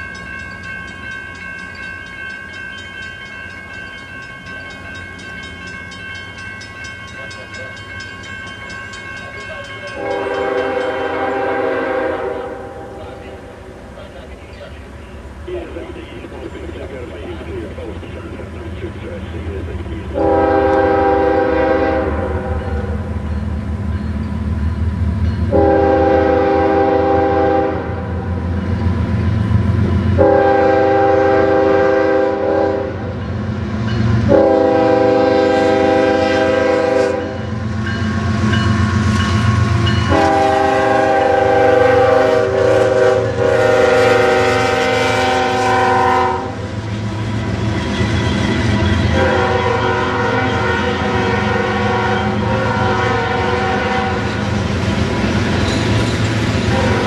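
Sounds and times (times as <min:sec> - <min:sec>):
train rumbling over rails: 0:00.0 - 0:57.0
train air horn blasts: 0:09.9 - 0:13.0, 0:20.1 - 0:23.0, 0:25.5 - 0:28.2, 0:30.2 - 0:33.1, 0:34.3 - 0:37.4, 0:39.5 - 0:46.7, 0:49.1 - 0:54.4, 0:56.6 - 0:57.0.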